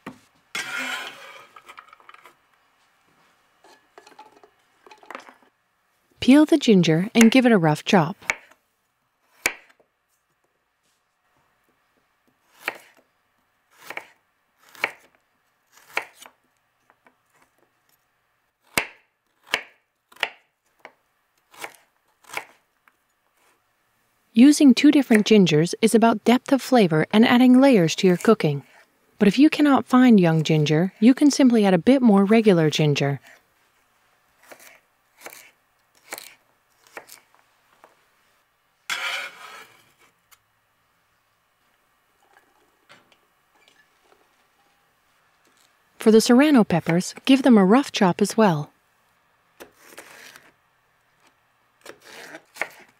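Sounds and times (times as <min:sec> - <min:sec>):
noisy rasp: 0:00.6 - 0:01.4
knife chopping on cutting board: 0:13.8 - 0:14.1.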